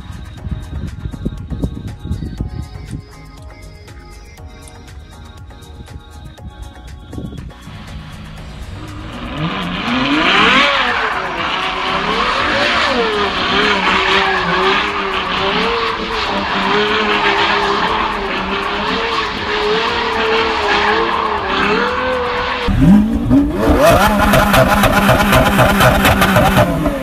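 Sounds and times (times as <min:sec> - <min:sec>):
another engine revving sharply: 0:07.7 - 0:27.0
car engine revving: 0:07.7 - 0:27.0
tyres screeching: 0:08.8 - 0:27.0.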